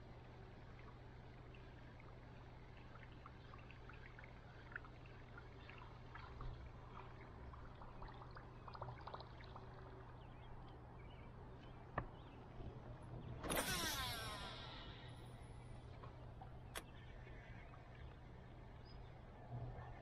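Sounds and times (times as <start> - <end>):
low steady hum: 0.0 - 20.0
water trickling along hull: 0.0 - 20.0
small water drips: 0.2 - 12.4, 14.6 - 19.4.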